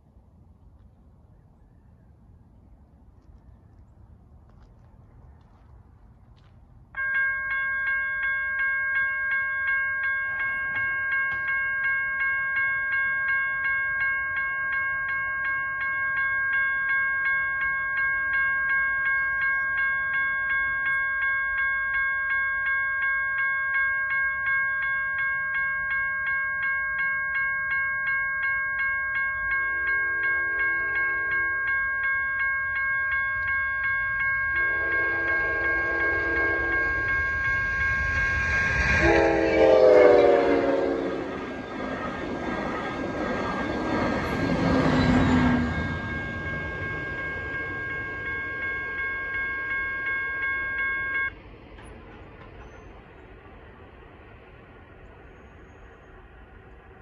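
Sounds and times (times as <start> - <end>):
railroad crossing bells ringing: 6.4 - 57.0
train horn: 29.8 - 31.8, 34.6 - 41.6.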